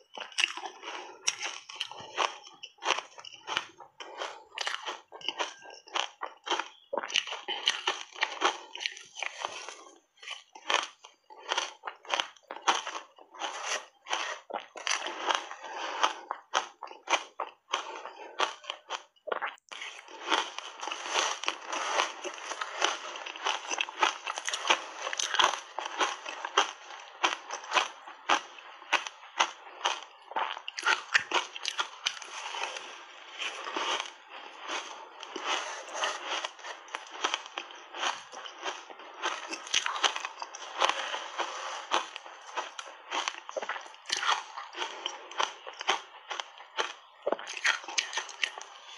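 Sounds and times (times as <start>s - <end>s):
shaved ice crunched and chewed: 0.0s - 48.9s.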